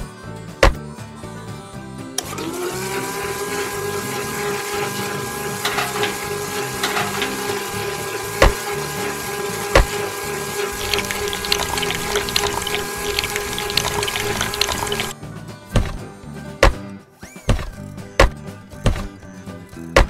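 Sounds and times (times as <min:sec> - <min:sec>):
small electric motor whining: 0:02.2 - 0:15.1
liquid trickling into buckets: 0:04.4 - 0:15.1.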